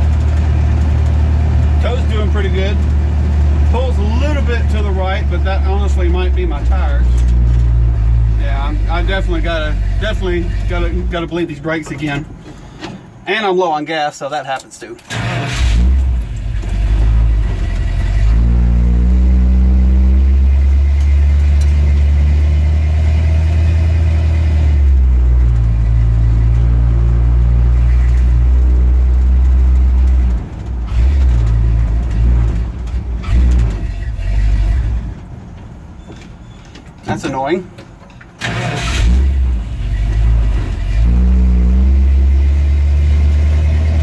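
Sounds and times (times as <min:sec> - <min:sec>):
truck engine rumbling: 0:00.0 - 0:44.0.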